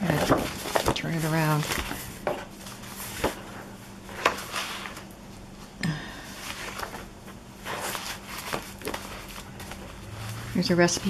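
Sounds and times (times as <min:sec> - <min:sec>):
paper sheets rustling: 0:00.0 - 0:05.1, 0:06.4 - 0:11.0.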